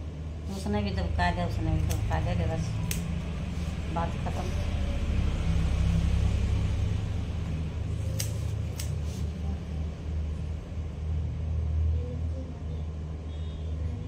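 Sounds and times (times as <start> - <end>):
steady low rumble: 0.0 - 14.0
scissors snipping hair: 1.8 - 3.4, 7.9 - 9.3.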